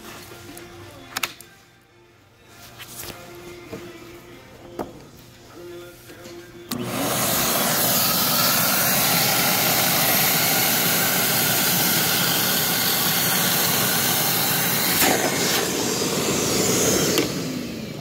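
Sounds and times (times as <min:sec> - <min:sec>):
vacuum motor whirring: 0:06.7 - 0:18.0.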